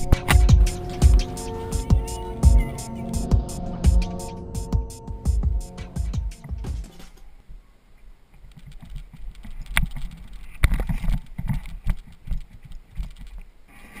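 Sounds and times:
low thumps and knocks: 0.0 - 7.1.

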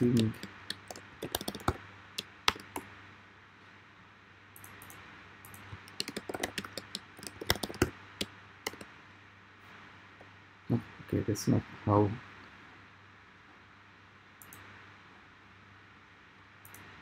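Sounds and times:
keyboard typing clicks: 0.0 - 2.8, 4.6 - 8.9.

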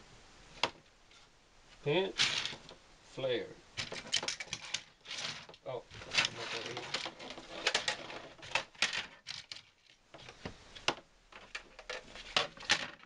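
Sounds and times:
plastic track clicking and clattering: 2.2 - 2.7, 3.8 - 13.0.

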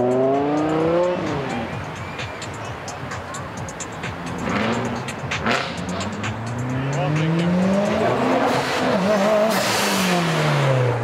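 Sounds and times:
car engine accelerating: 0.0 - 1.7, 4.2 - 11.0
music playing: 0.0 - 11.0.

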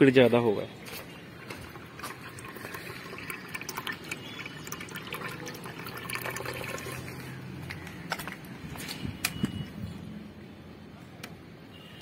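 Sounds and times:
water running into tank: 1.3 - 7.2.

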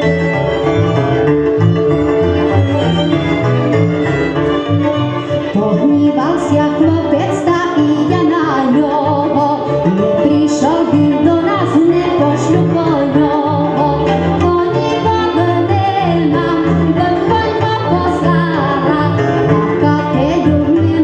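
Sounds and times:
folk band playing: 0.0 - 21.0
pulsing bass line: 0.0 - 21.0
woman singing: 5.4 - 21.0.

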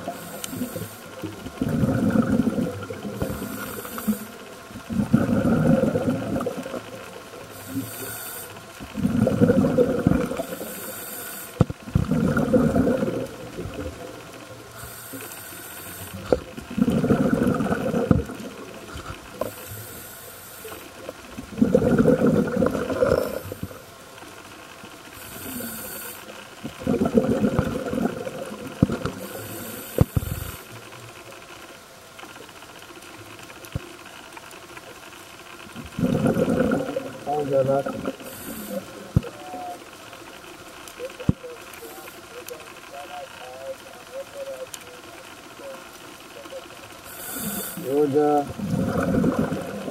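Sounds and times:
regulator inhalation hiss: 0.0 - 1.3, 3.1 - 4.5, 7.5 - 8.7, 10.4 - 11.6, 14.7 - 16.4, 18.9 - 21.0, 25.2 - 26.4, 29.2 - 30.7, 38.2 - 39.1, 47.0 - 48.0
exhaled bubbles rushing: 1.4 - 3.7, 4.7 - 7.2, 8.8 - 10.6, 11.8 - 14.4, 16.2 - 19.4, 21.1 - 23.8, 26.6 - 29.2, 35.7 - 39.3, 48.4 - 49.9.

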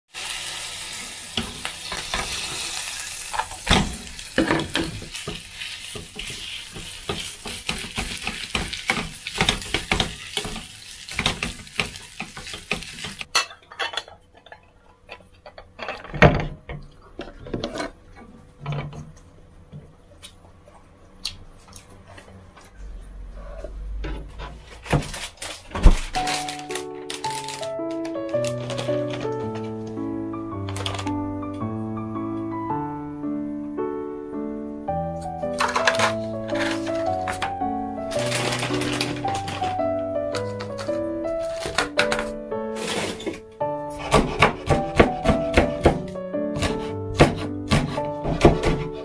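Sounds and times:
oil sizzling in frying pan: 0.1 - 13.3
utensils scraping pan: 4.5 - 14.0, 35.6 - 37.5, 40.4 - 44.8.

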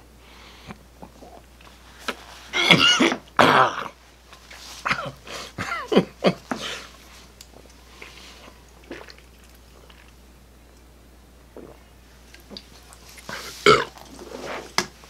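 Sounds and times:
mouth clicks and swallows: 11.6 - 14.9.

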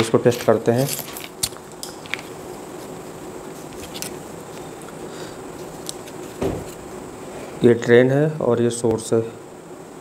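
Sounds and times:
faint hum: 0.0 - 10.0
room hiss: 0.0 - 10.0
low thud: 6.4 - 6.7.

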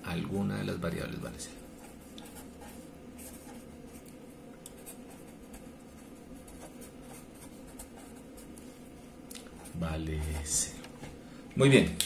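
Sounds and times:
pen scratching on paper: 1.7 - 4.0, 4.8 - 8.5.

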